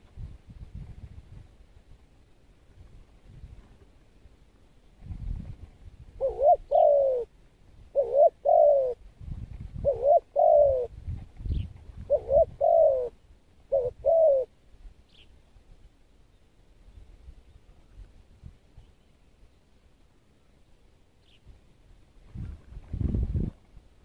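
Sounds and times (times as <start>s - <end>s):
dove cooing: 6.2s - 7.3s, 7.9s - 9.0s, 9.7s - 14.6s.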